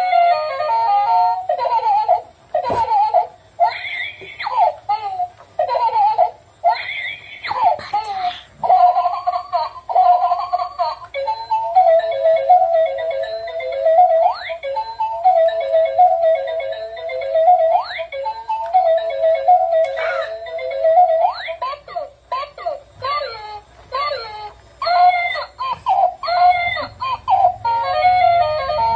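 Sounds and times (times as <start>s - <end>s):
toy electronic melody: 0.0s - 2.2s, 8.6s - 28.9s.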